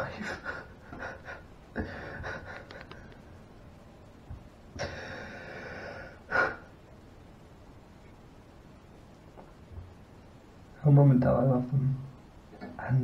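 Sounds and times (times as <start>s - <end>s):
man breathing raggedly: 0.2s - 3.1s, 4.8s - 6.7s.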